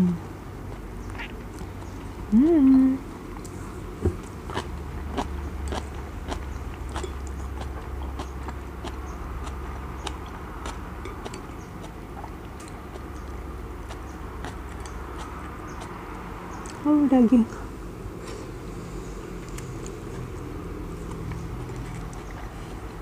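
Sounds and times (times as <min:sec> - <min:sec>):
person chewing crunchy food: 0:03.3 - 0:16.8, 0:18.9 - 0:23.0.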